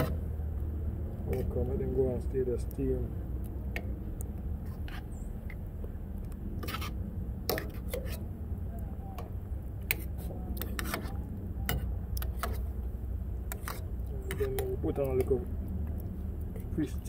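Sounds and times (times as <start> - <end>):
spoon scraping metal pan: 4.6 - 5.2, 6.6 - 8.3, 9.8 - 12.8, 13.4 - 15.3.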